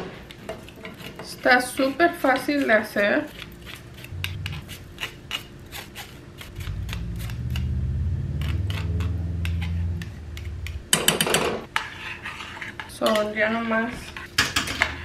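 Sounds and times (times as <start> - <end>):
low hum: 3.6 - 5.0, 6.4 - 11.7.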